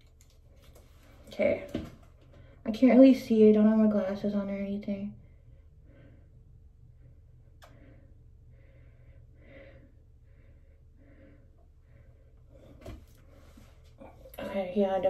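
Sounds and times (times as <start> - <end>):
faint regular breathing: 5.2 - 14.3.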